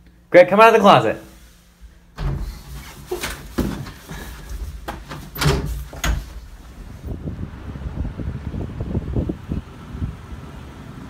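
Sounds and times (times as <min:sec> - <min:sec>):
closet door banging open: 0:02.1 - 0:06.9
knocks and thuds: 0:02.2 - 0:06.7.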